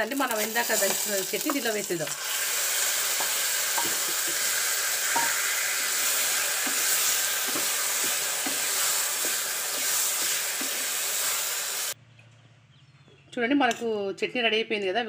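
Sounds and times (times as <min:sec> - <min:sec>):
hot oil sizzling: 0:00.0 - 0:12.0
spatula scraping a pan: 0:03.1 - 0:11.5.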